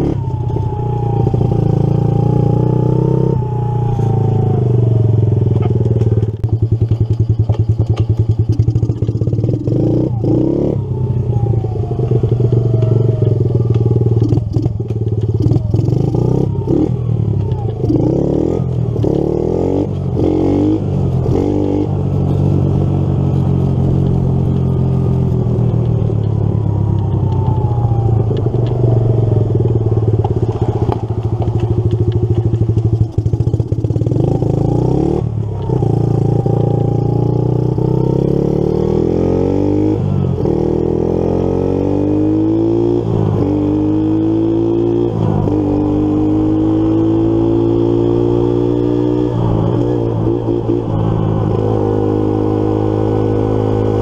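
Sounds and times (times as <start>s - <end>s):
small motorbike engine revving: 0.0s - 22.5s.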